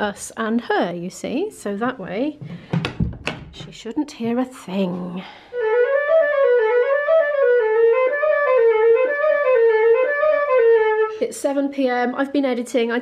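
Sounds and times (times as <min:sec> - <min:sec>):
solo flute melody: 0:05.5 - 0:11.2.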